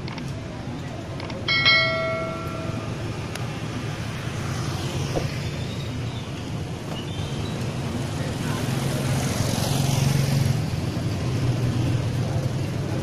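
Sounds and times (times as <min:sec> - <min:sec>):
traffic engine rumble: 0:00.0 - 0:13.0
bell ringing: 0:01.5 - 0:03.3.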